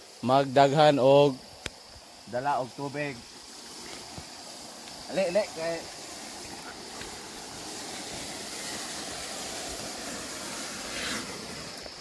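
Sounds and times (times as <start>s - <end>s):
rushing flowing water: 1.4s - 12.0s
water splashing: 2.8s - 12.0s.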